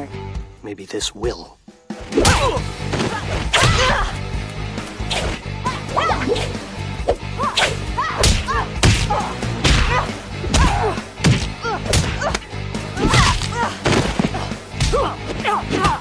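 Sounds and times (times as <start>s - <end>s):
background music: 0.0s - 16.0s
punch impacts: 7.6s - 12.3s.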